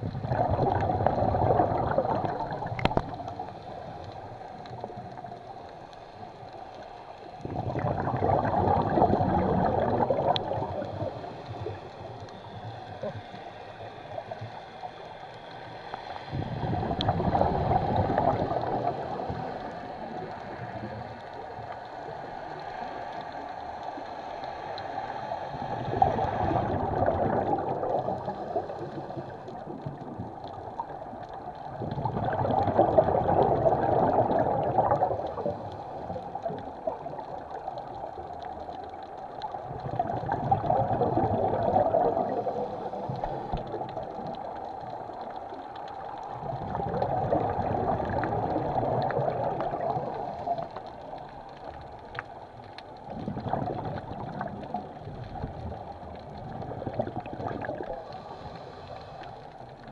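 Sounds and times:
regulator bubbles gurgling underwater: 0.0 - 59.9.

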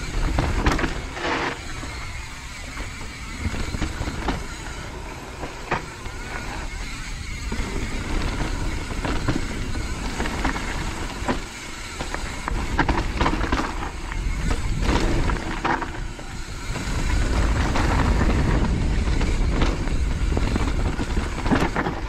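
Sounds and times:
bike knocking and rattling: 0.0 - 22.0
tyres on dirt: 0.0 - 22.0
wind on microphone: 0.0 - 22.0.

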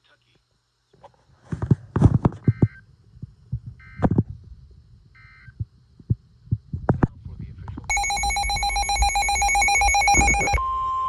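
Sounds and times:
dull low thumps: 1.6 - 10.6
short electronic beeps: 7.9 - 11.0.

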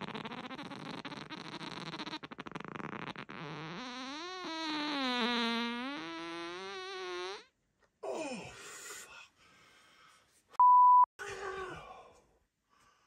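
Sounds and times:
fart: 0.0 - 7.5
censor bleep: 10.6 - 11.1.

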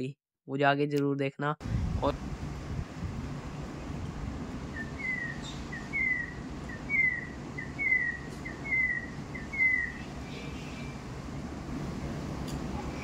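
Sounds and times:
low background rumble: 1.6 - 13.0
bird calling with falling whistle: 4.7 - 11.0.

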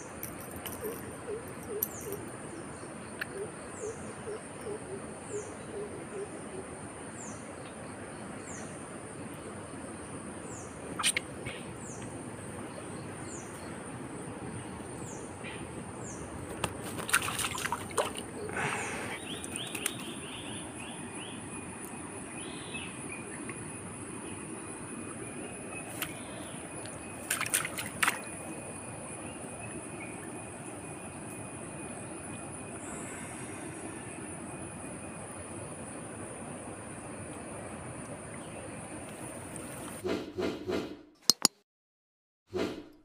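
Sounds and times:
rustling in wet grass: 16.4 - 19.0
high insect drone: 17.2 - 37.8.

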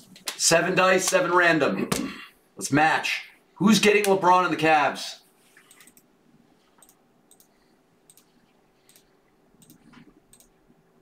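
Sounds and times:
faint irregular clicks: 5.6 - 10.8.

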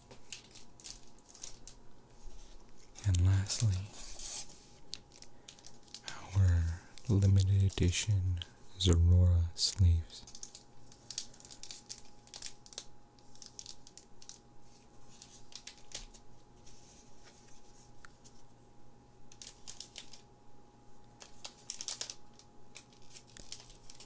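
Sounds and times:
plastic packaging crinkling: 0.0 - 6.3, 10.2 - 16.4, 19.3 - 20.3, 21.2 - 24.0
faint steady hum: 0.0 - 24.0.

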